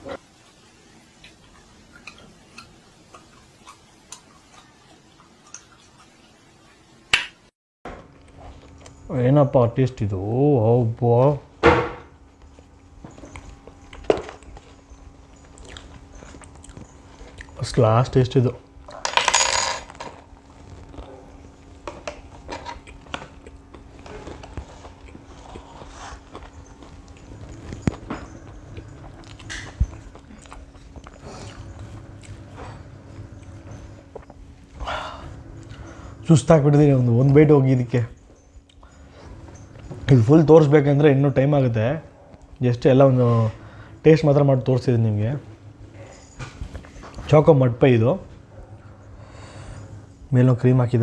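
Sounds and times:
chewing with soft clicks: 1.2 - 6.8, 12.4 - 17.6, 22.4 - 32.5, 38.3 - 39.0
biting into a burger: 20.3 - 34.4.

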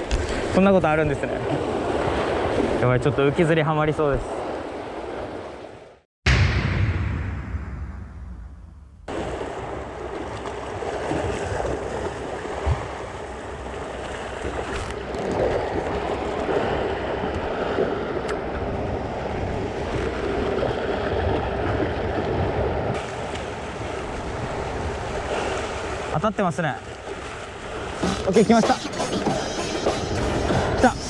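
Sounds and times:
sea waves washing: 9.1 - 26.2, 26.8 - 31.0.

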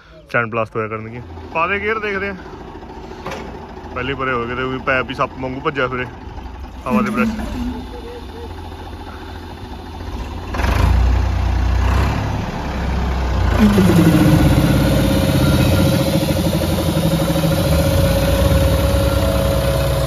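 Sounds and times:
tractor diesel engine running: 0.0 - 20.0
air compressor drone with whine: 13.6 - 20.0.

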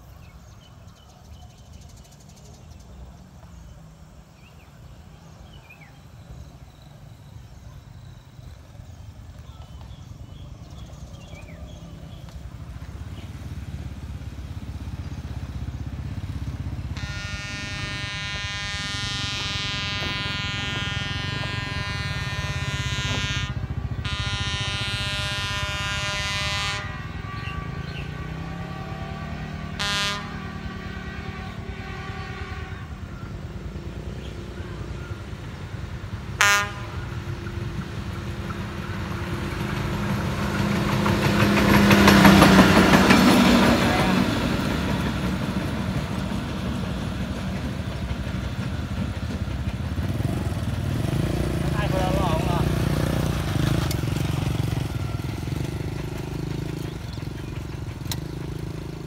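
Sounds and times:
engine drone: 8.5 - 59.0
vehicle horn blasts: 16.9 - 33.1, 36.4 - 37.2.

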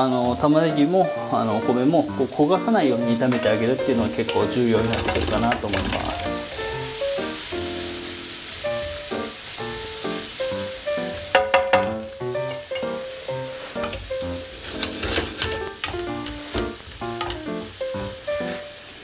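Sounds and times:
plucked background music: 0.0 - 18.9
rice and onion sizzling in pan: 0.0 - 19.0
wooden spatula scraping pan: 0.1 - 7.0, 12.4 - 17.7.

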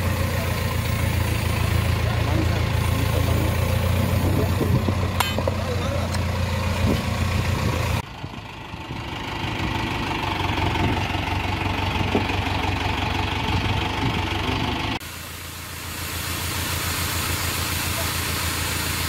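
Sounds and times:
tractor engine idling: 0.0 - 19.0.

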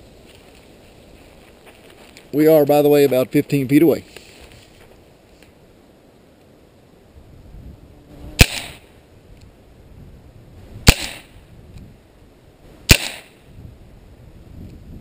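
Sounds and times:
pellet pistol shots: 8.4 - 8.8, 10.8 - 11.4, 12.9 - 13.4.

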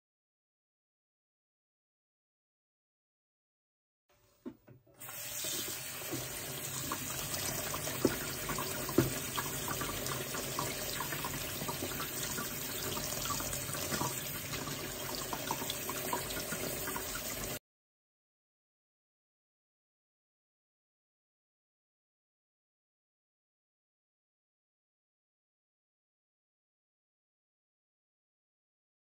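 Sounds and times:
tap water splashing: 4.4 - 17.6.

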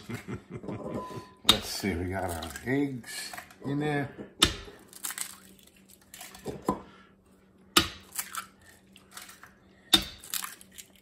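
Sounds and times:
eggshells cracking: 4.4 - 6.6, 7.8 - 11.0
shell crackling open: 4.8 - 6.4.

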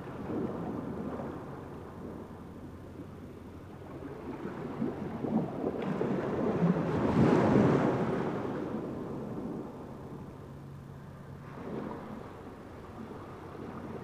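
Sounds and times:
wind buffeting microphone: 0.0 - 10.5.

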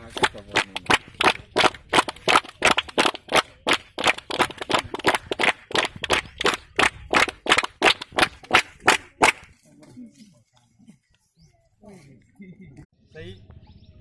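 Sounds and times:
people clapping: 0.0 - 9.6.

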